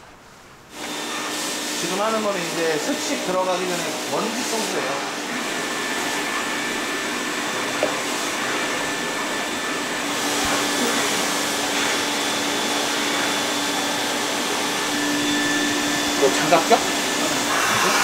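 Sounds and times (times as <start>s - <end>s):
vacuum cleaner running: 0.0s - 18.0s.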